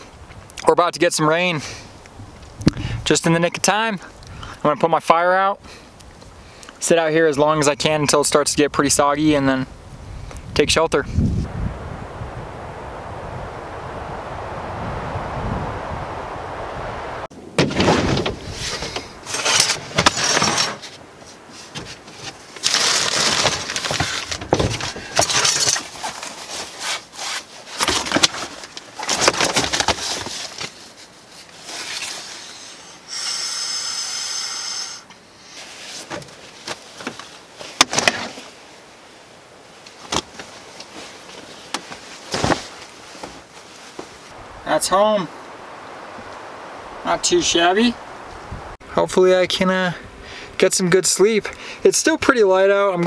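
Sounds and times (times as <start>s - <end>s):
steady hiss: 9.2s - 17.3s, 30.2s - 52.2s
gear knocks and bumps: 21.7s - 26.3s
bedding rustling against floor: 40.0s - 44.3s.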